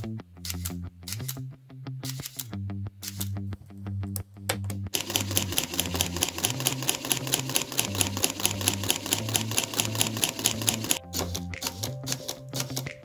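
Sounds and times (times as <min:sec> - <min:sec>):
toy electric motor clicking: 0:05.0 - 0:12.9.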